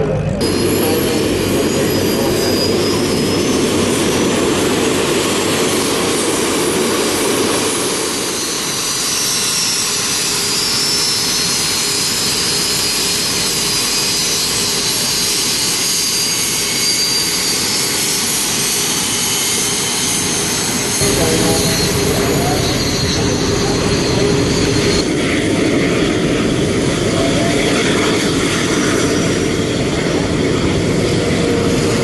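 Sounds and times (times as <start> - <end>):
high-pitched turbine whine: 0.0 - 32.0
jet engines rushing: 0.0 - 32.0
low engine rumble: 21.0 - 27.6.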